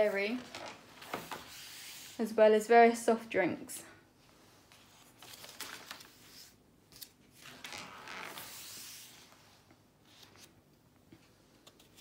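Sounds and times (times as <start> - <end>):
sketchbook pages turning: 4.7 - 9.4, 10.1 - 10.6.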